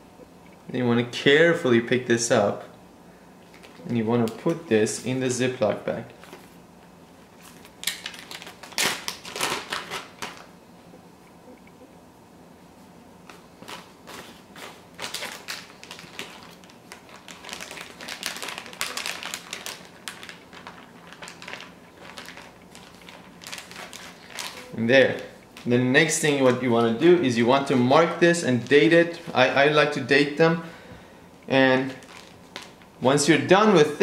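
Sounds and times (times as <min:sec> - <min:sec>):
plastic bag crinkling: 0:03.4 - 0:04.6, 0:07.4 - 0:10.5, 0:13.3 - 0:30.0, 0:31.8 - 0:33.0.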